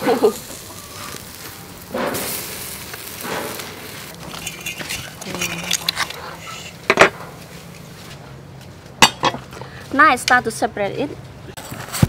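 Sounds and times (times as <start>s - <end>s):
meat hissing on a grill: 0.0s - 6.9s
tongs clinking on metal tray: 4.3s - 6.7s.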